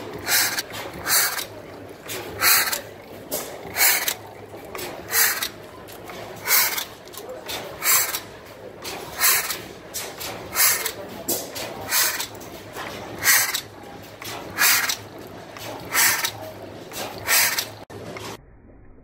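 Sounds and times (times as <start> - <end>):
stationary gas engine running: 0.0 - 18.2
sharp exhaust puffs: 6.4 - 6.9, 7.8 - 8.3, 8.9 - 11.0, 11.6 - 12.4, 13.2 - 15.1, 15.8 - 17.9.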